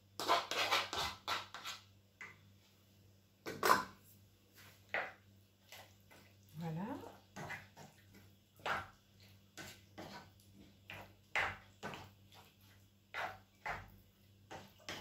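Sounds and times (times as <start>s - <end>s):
spatula scraping thick chili in pan: 0.0s - 2.0s, 7.1s - 15.0s.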